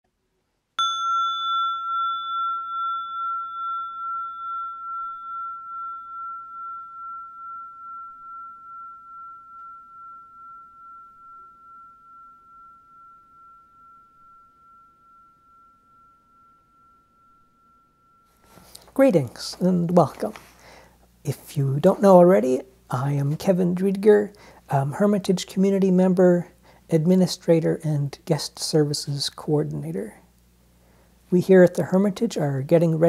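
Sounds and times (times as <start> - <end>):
bell ringing: 0.8 - 18.8.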